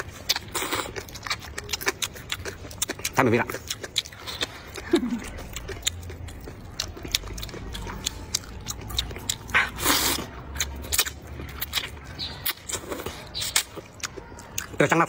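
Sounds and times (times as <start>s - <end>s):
wet mouth clicks and chewing: 0.0s - 15.0s
loud slurp of noodles: 9.6s - 10.3s.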